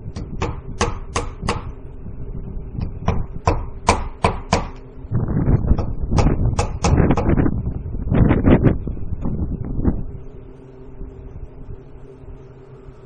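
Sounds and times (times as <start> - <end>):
low rumble: 0.0 - 13.0
hammer knocking nails: 3.1 - 4.8, 5.8 - 7.0.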